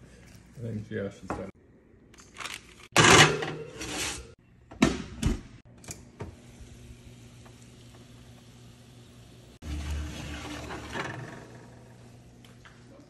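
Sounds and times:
oven humming: 6.0s - 13.0s
chicken sizzling: 6.4s - 10.9s.

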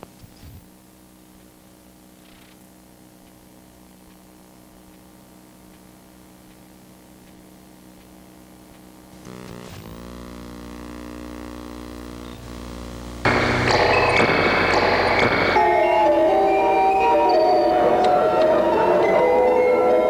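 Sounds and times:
low electronic hum: 0.0s - 18.7s
loud electronic drone: 9.1s - 20.0s.

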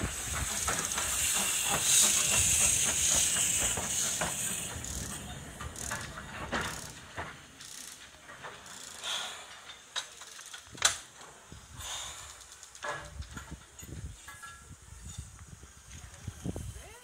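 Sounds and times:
steam hissing: 0.0s - 8.0s, 11.4s - 17.0s
locomotive wheels clanking: 0.0s - 16.1s.

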